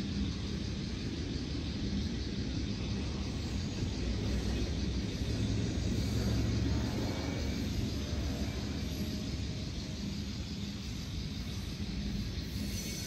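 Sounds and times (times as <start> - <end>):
model train wheels rumbling on rail: 0.0 - 13.0.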